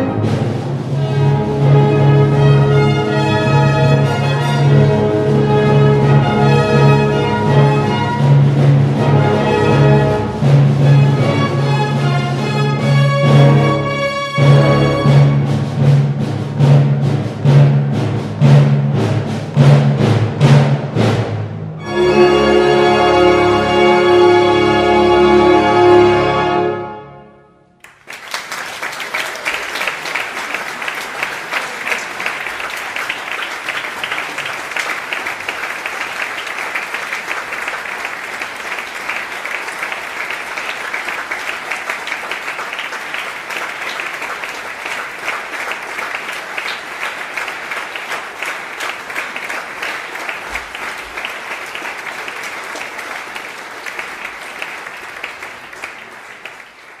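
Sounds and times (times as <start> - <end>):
audience applause: 2.1 - 15.3, 27.8 - 57.0.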